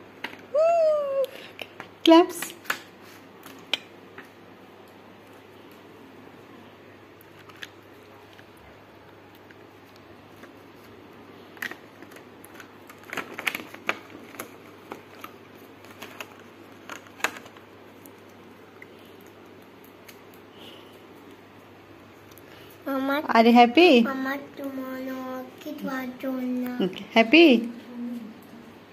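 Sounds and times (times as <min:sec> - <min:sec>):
plastic packaging crackling: 0:11.5 - 0:20.4.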